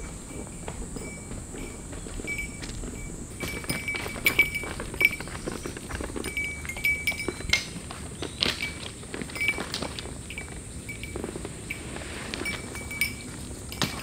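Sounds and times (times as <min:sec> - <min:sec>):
cicadas droning: 0:00.0 - 0:14.0
footsteps on leaf litter: 0:00.0 - 0:14.0.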